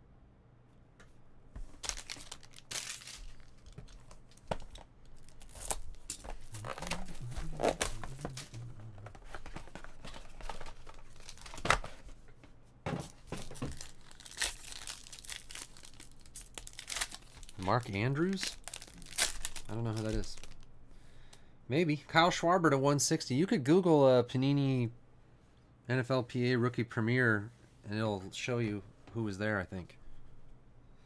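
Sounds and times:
foil pack ripping: 1.8s - 3.8s, 5.2s - 8.6s, 13.4s - 20.6s
foil crinkling: 1.8s - 11.8s, 13.4s - 20.6s.

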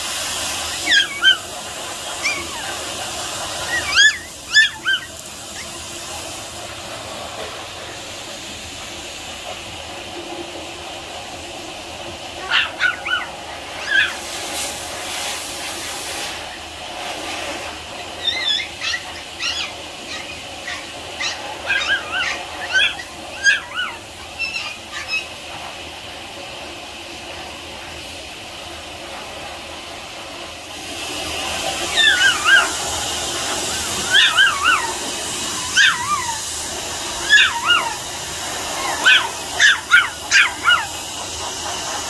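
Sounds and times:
steady hiss: 0.0s - 42.0s
puppy whimpering and yipping: 0.6s - 5.8s, 12.4s - 14.3s, 18.1s - 25.4s, 31.9s - 41.0s.

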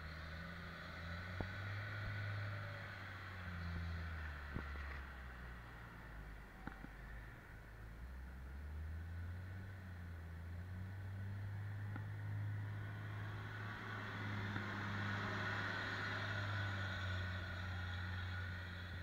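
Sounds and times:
diesel loader driving past: 8.4s - 19.0s.

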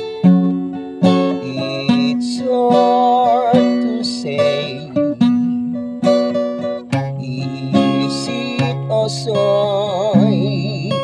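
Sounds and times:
acoustic guitar strumming: 0.0s - 11.0s
man singing: 1.1s - 5.4s, 6.8s - 11.0s.

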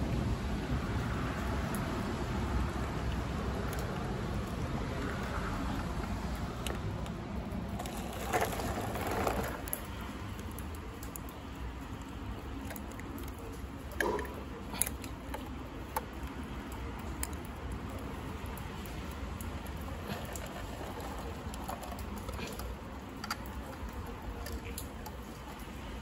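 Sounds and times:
rain: 0.0s - 26.0s
wind: 0.0s - 26.0s
light clicks of small parts: 9.6s - 26.0s.

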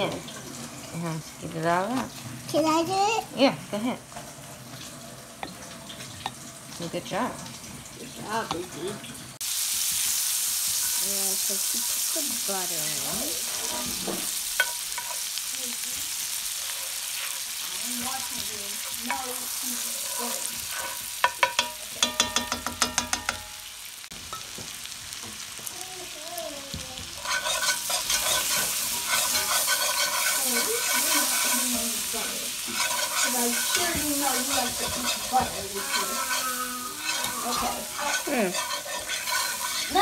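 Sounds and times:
butter and vegetables sizzling: 0.0s - 40.0s
whisk scraping pan: 9.8s - 23.4s, 27.0s - 40.0s.

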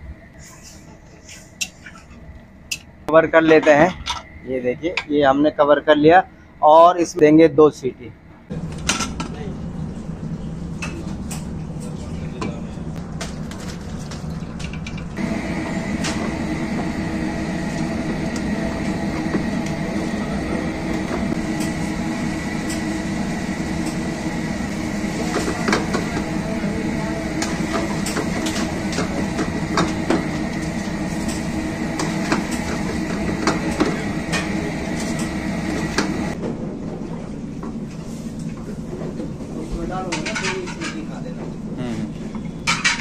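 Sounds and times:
kitchen roar: 0.0s - 5.9s, 8.5s - 43.0s
thin high whine: 0.0s - 8.8s, 15.2s - 36.4s.

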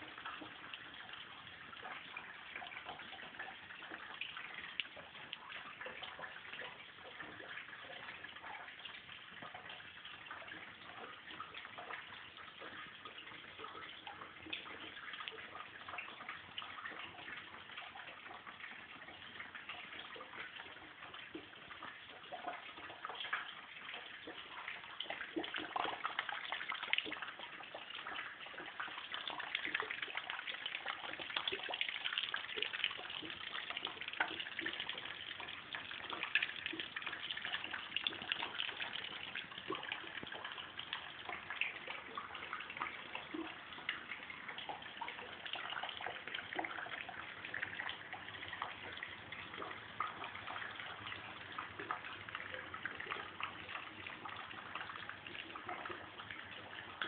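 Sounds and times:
water pouring into a metal pot: 0.0s - 57.0s.

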